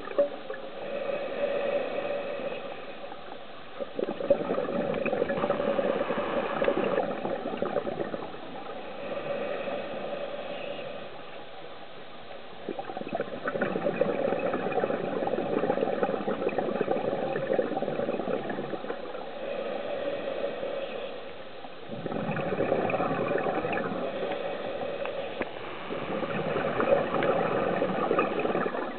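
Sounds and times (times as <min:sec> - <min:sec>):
muffled underwater bubbles gurgling: 0:03.7 - 0:11.0, 0:12.6 - 0:21.0, 0:21.8 - 0:28.9.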